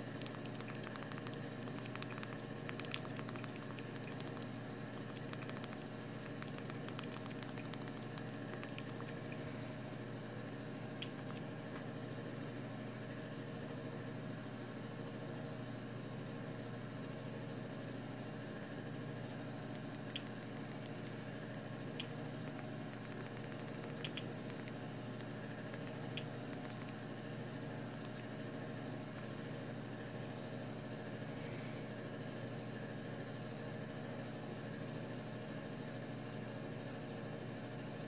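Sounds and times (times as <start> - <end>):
machine hum: 0.0 - 14.9, 16.7 - 32.2
remote buttons clicking: 0.2 - 9.4, 11.0 - 11.4, 19.8 - 22.1, 22.9 - 27.0.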